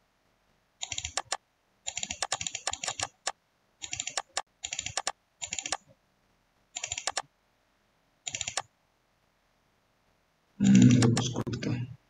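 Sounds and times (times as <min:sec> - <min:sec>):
keyboard typing: 0:00.8 - 0:05.9, 0:06.8 - 0:07.3, 0:08.2 - 0:08.7, 0:10.6 - 0:11.7.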